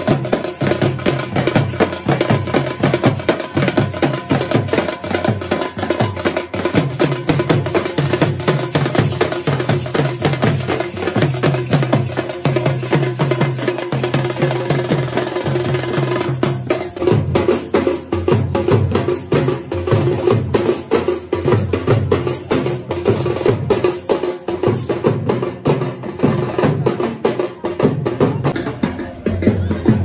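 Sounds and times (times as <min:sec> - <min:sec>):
fast steady drumming: 0:00.0 - 0:30.0
folk dance music: 0:28.4 - 0:30.0.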